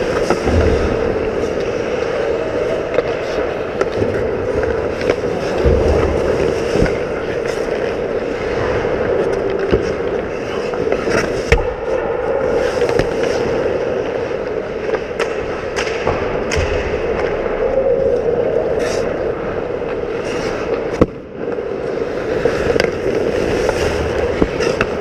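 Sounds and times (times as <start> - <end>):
hockey sticks and puck clacking: 0.0 - 25.0
skate blades scraping on ice: 18.7 - 25.0.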